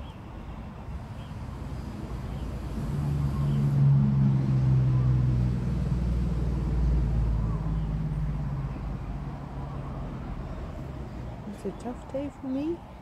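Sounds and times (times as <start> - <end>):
vehicle engine hum: 0.0 - 13.0.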